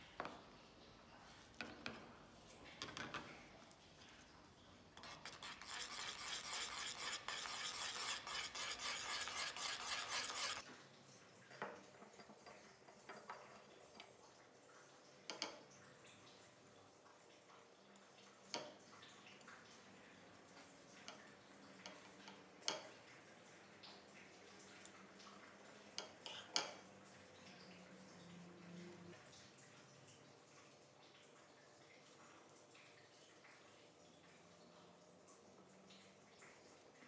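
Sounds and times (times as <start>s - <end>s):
putty knife scraping paste: 5.0s - 10.6s.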